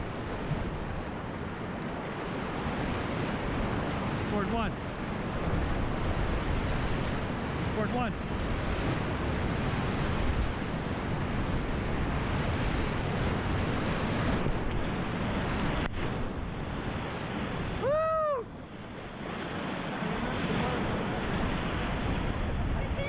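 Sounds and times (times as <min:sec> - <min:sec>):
rushing whitewater: 0:00.0 - 0:23.0
wind buffeting microphone: 0:04.8 - 0:23.0.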